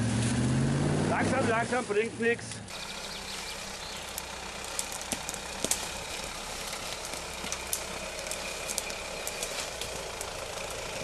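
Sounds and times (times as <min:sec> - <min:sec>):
car engine running at low revs: 0:00.0 - 0:11.0
twigs snapping under tyres: 0:02.5 - 0:11.0.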